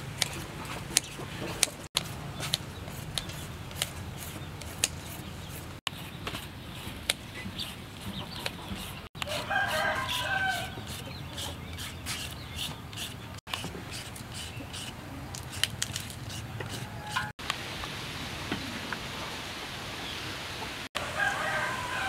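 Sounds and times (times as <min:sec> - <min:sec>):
rooster crowing: 0:09.2 - 0:10.8, 0:16.8 - 0:17.3, 0:21.0 - 0:22.0.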